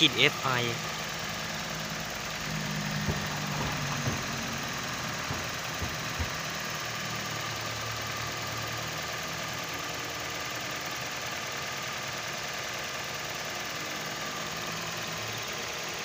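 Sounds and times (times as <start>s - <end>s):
car engine idling: 0.0s - 16.0s.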